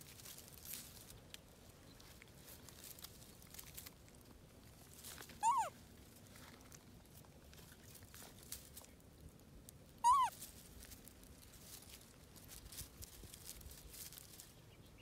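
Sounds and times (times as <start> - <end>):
dry twigs rustling: 0.0 - 14.9
baby monkey call: 5.4 - 5.7, 10.0 - 10.4.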